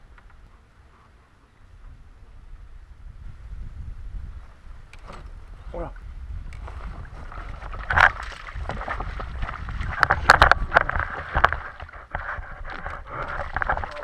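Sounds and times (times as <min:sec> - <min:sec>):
wind rumble on microphone: 0:00.0 - 0:14.0
water splashing against kayak: 0:06.4 - 0:14.0.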